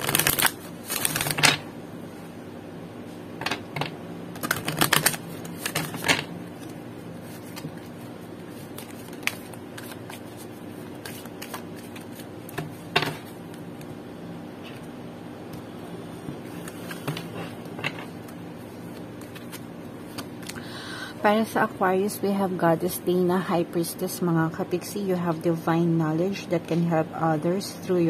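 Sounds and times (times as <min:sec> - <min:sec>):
cards shuffling: 0:00.0 - 0:01.6, 0:04.4 - 0:13.3, 0:16.4 - 0:17.5, 0:18.9 - 0:20.6.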